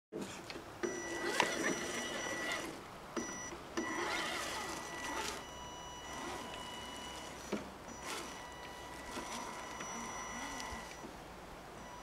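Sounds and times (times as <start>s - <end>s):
electric motor whining: 0.9s - 2.8s, 3.8s - 11.0s.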